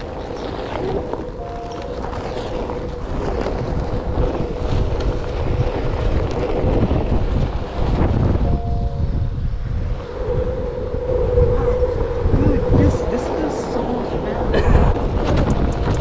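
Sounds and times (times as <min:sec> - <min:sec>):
tyre rumbling over dirt: 0:00.0 - 0:08.4
wind buffeting microphone: 0:00.0 - 0:16.0.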